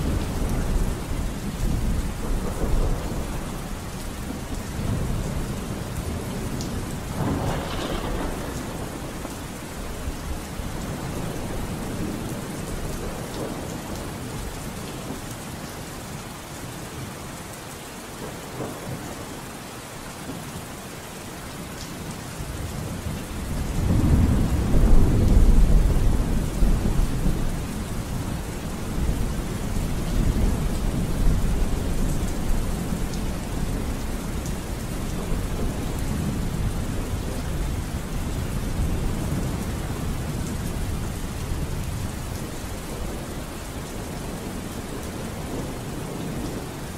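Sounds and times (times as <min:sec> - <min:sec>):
rolling thunder: 0:00.0 - 0:14.3, 0:23.4 - 0:43.3
steady rain: 0:00.0 - 0:46.9.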